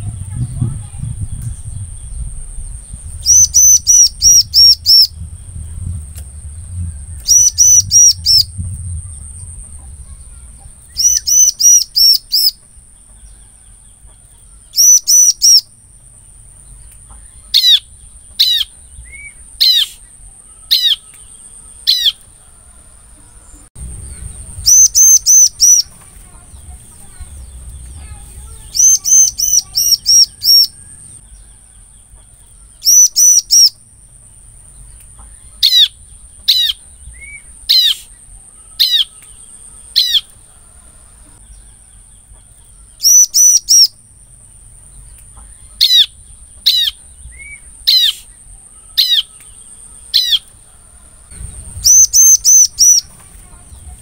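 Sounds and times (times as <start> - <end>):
bird singing sharp repeated notes: 1.4 - 12.6, 14.7 - 15.8, 23.8 - 31.3, 32.8 - 33.8, 43.0 - 44.0, 51.3 - 54.0.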